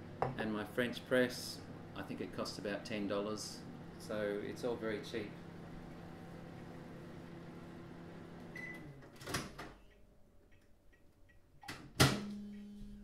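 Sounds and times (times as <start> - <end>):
microwave oven humming: 0.0 - 10.4, 11.7 - 13.0.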